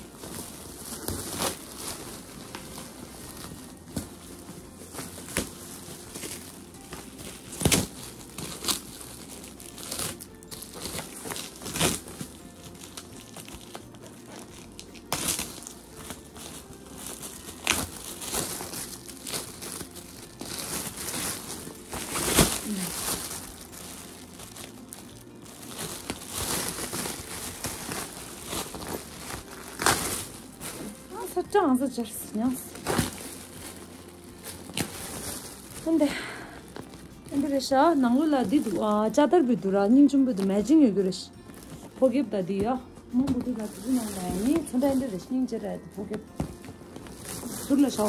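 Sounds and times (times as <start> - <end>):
gift packaging crinkling and tearing: 0.0 - 48.0.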